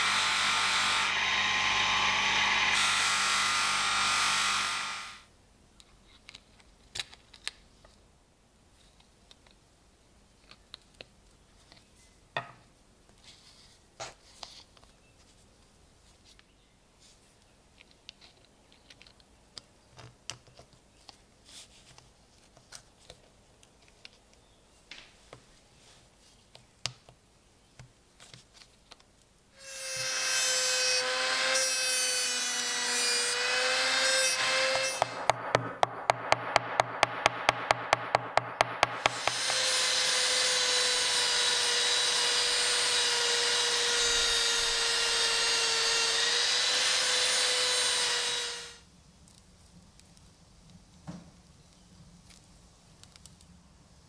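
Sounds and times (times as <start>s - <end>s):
power tool motor whine: 0.0s - 5.2s, 38.6s - 48.8s.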